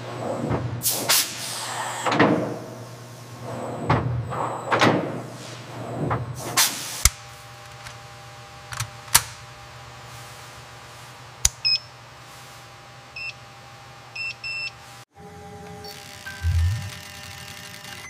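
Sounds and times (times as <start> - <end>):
two-tone electronic beeps: 16.3 - 16.9.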